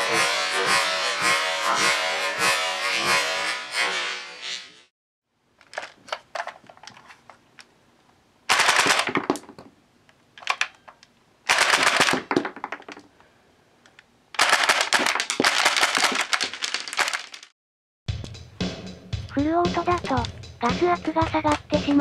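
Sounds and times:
airsoft gun firing bursts: 8.5s - 9.1s, 11.5s - 12.3s, 14.4s - 15.0s.

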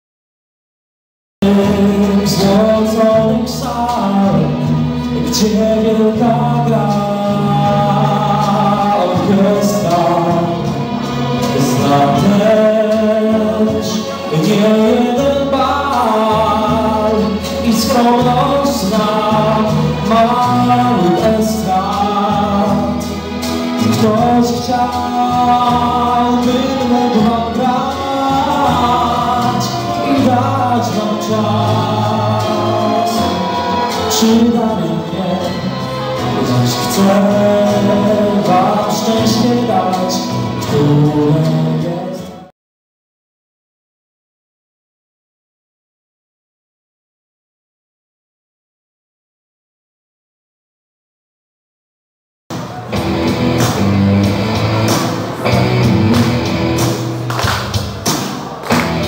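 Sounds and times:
young man singing into microphone: 1.4s - 42.5s
instrumental backing track with beat: 52.5s - 59.0s.

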